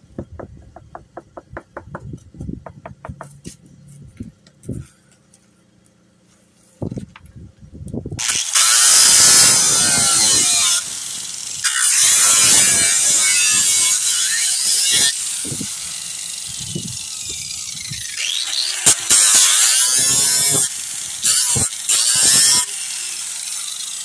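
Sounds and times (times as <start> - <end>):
angle grinder sanding fibreglass: 8.2 - 24.0.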